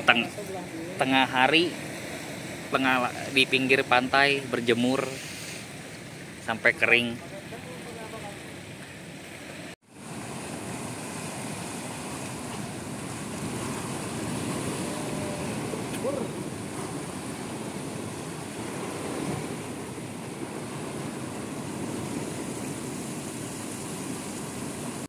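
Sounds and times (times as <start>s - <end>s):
surf breaking on rocky shore: 9.8s - 25.0s.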